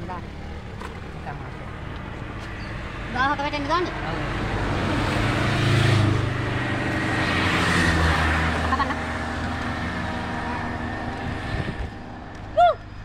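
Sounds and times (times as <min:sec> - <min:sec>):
vehicle engine passing by: 0:00.0 - 0:13.0
loud high call: 0:12.6 - 0:12.9.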